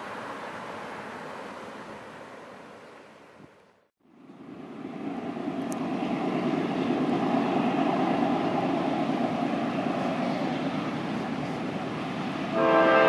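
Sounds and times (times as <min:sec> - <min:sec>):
diesel locomotive engine rumble: 0:00.0 - 0:13.0.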